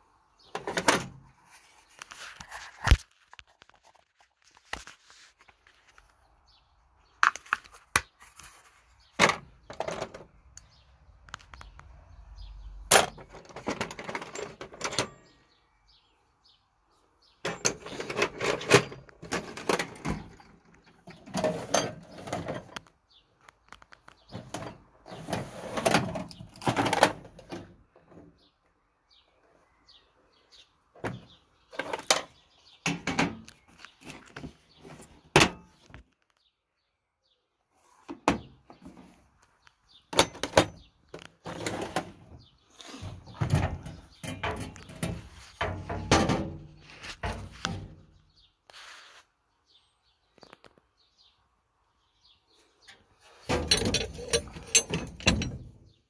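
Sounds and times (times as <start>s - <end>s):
metal drawers and tools rattling: 0.5s - 1.2s, 9.2s - 10.3s, 12.9s - 15.3s, 17.4s - 22.8s, 24.3s - 28.3s, 31.0s - 35.8s, 40.1s - 48.1s, 52.8s - 56.0s.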